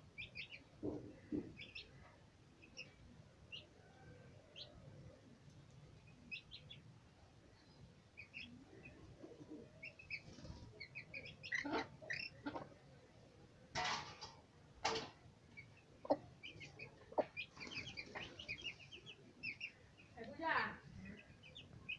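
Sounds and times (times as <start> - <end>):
chicks peeping: 0.2 - 2.0, 8.1 - 12.8, 15.5 - 20.2, 21.0 - 21.9.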